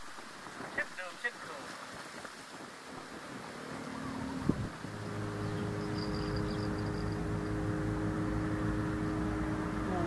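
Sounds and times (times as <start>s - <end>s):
steady engine hum: 2.9s - 10.0s.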